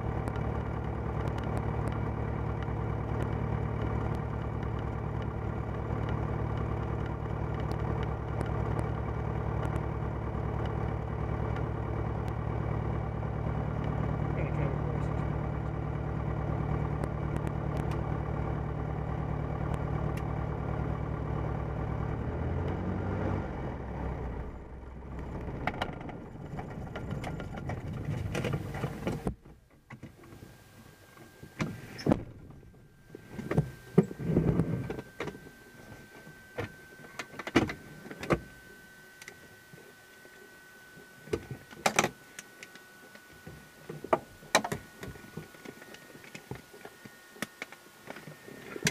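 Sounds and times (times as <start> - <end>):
aircraft piston engine idling: 30.2 - 48.9
faint high-pitched tone: 32.8 - 48.9
clicks and knocks in cockpit: 41.3 - 42.8.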